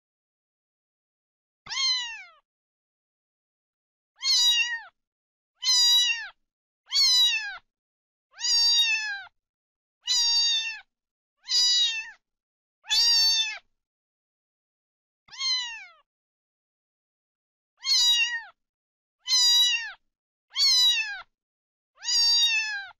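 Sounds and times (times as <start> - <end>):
cat meowing: 1.7 - 2.4, 4.2 - 5.0, 5.6 - 7.6, 8.3 - 9.3, 10.0 - 12.2, 12.8 - 13.6, 15.3 - 16.0, 17.8 - 18.6, 19.2 - 21.3, 22.0 - 22.9.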